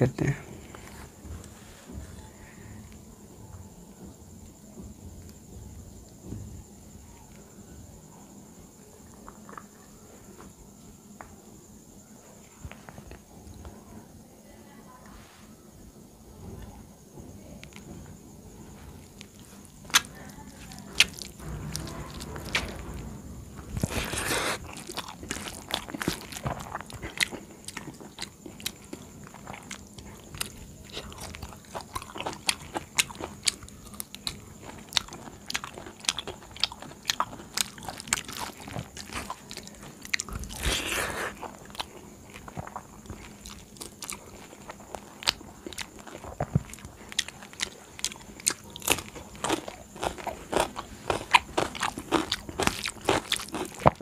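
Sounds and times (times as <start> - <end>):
chewing and crunching: 9.0 - 10.4, 18.8 - 54.0.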